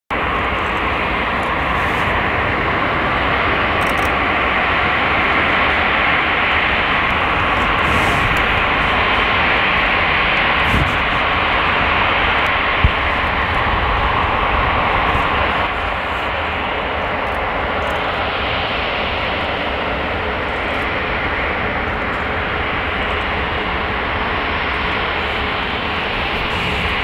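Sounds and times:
jet engines idling: 0.1 - 27.0.

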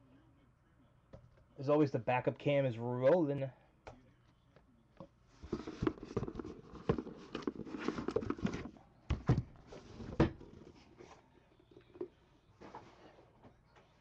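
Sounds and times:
camera handling rustling: 5.5 - 8.7.

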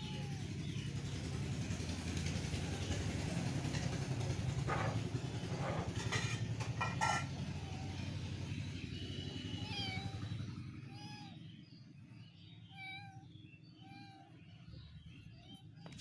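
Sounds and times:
kitten mewing: 9.6 - 10.2, 10.8 - 11.4.

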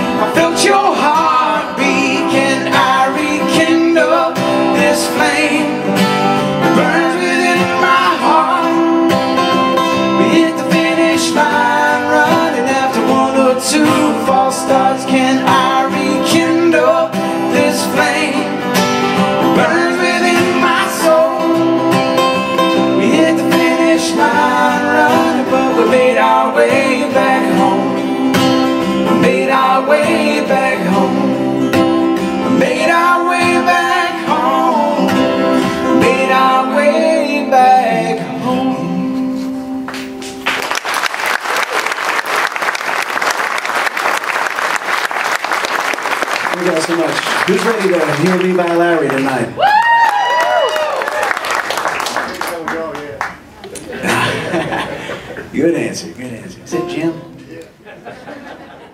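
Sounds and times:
person singing: 0.0 - 40.0
acoustic guitars playing: 0.0 - 50.7, 51.3 - 58.9.

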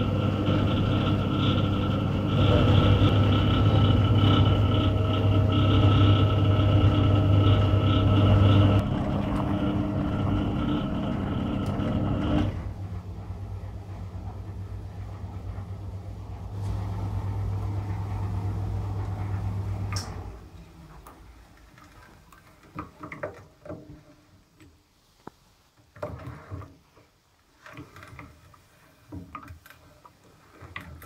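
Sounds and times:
washing machine motor humming: 0.0 - 22.1.

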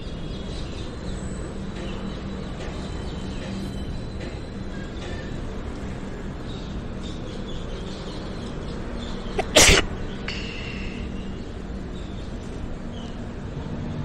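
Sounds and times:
train coaches rolling past: 0.0 - 9.4.

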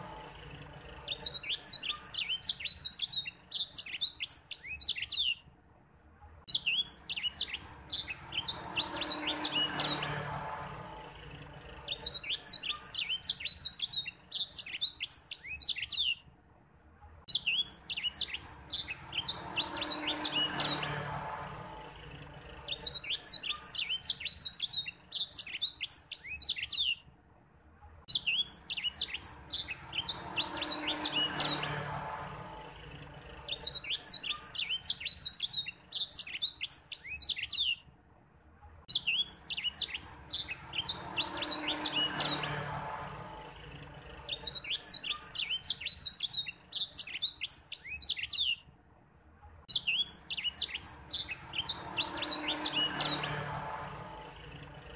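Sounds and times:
finch singing high twittering: 0.0 - 5.4, 6.5 - 10.5, 11.4 - 16.2, 17.3 - 21.4, 22.4 - 27.0, 28.1 - 32.5, 33.3 - 37.8, 38.9 - 43.3, 44.0 - 48.7, 49.7 - 54.1.

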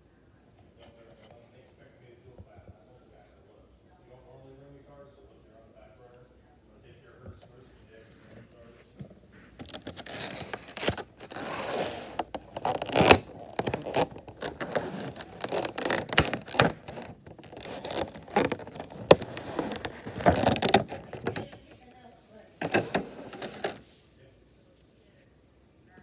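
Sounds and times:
plastic tray scraping and crinkling: 9.5 - 21.8, 22.4 - 23.9
stiff plastic clicks: 12.1 - 21.6.

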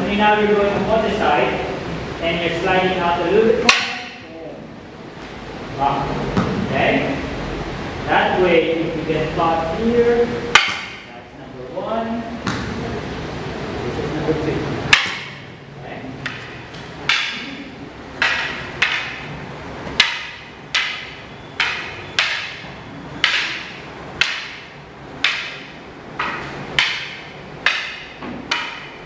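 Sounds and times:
wooden staffs clacking together: 3.6 - 4.2, 10.5 - 11.1, 14.9 - 15.6, 16.2 - 29.0.

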